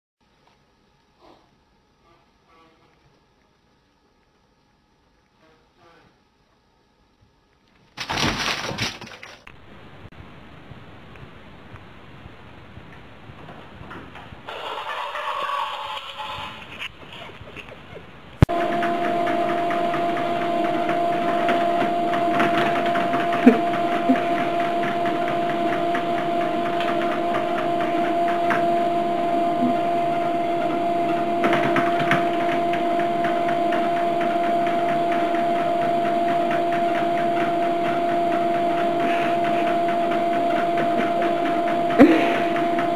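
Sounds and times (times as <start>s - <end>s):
treadmill motor humming: 18.4s - 42.9s.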